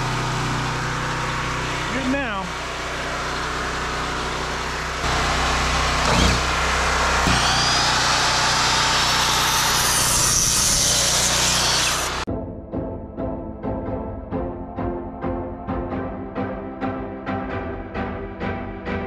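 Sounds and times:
motor running steadily: 0:00.0 - 0:12.3.

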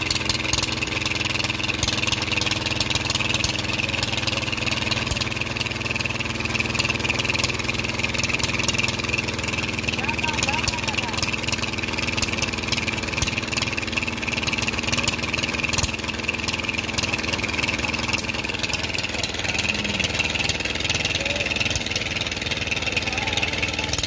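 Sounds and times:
chaff cutter engine running: 0:00.0 - 0:24.0.

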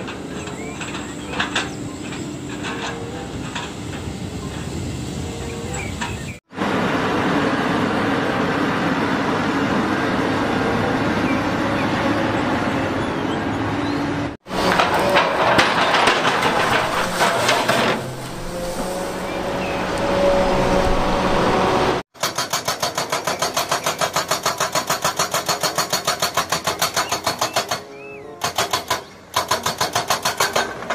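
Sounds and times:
excavator engine running: 0:00.0 - 0:28.7
hydraulic breaker hammering rock: 0:14.4 - 0:19.4, 0:22.2 - 0:30.9.

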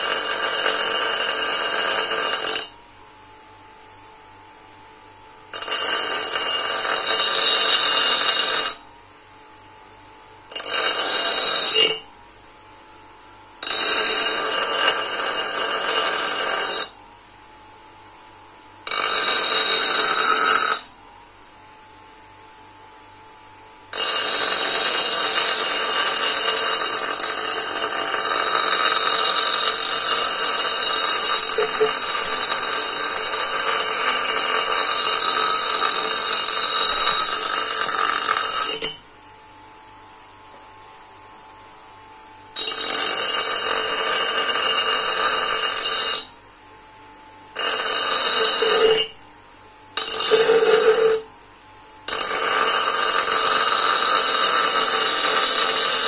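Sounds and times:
bench grinder grinding steel: 0:00.0 - 0:02.7, 0:05.5 - 0:08.8, 0:10.5 - 0:12.1, 0:13.6 - 0:17.0, 0:18.9 - 0:20.9, 0:23.9 - 0:39.0, 0:42.6 - 0:46.3, 0:47.6 - 0:49.2, 0:50.0 - 0:51.3, 0:52.1 - 0:56.0.

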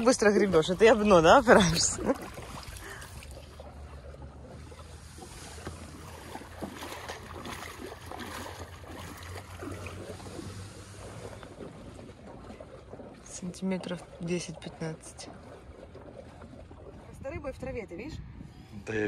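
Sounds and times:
oars pushing off the bottom: 0:00.0 - 0:18.0
oars splashing in water: 0:00.0 - 0:18.7
wind rumble on microphone: 0:15.1 - 0:19.0.

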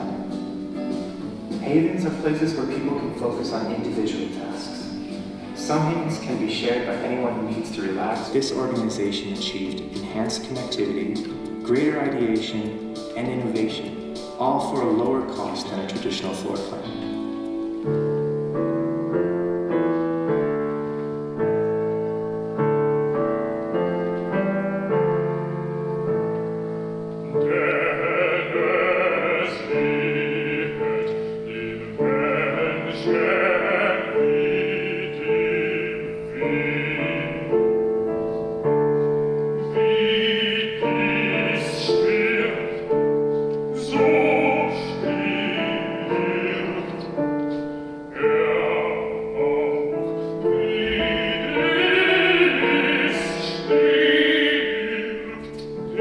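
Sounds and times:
piano playing slow chords: 0:00.0 - 0:56.0
operatic soprano singing: 0:27.3 - 0:38.1, 0:39.6 - 0:56.0.

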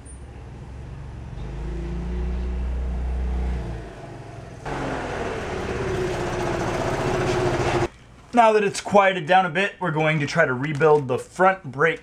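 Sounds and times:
vehicle engine low rumble: 0:00.0 - 0:07.9
scooter engine droning: 0:01.1 - 0:07.9.

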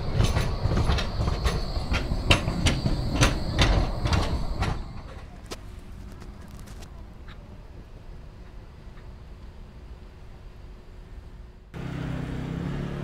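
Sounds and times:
sharp clicks of tram wheels: 0:00.0 - 0:07.5
tram wheels rumbling on rails: 0:00.0 - 0:13.0.

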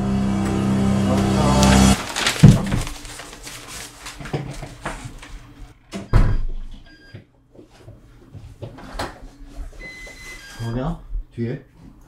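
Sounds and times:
heavy door thump: 0:01.2 - 0:03.0.

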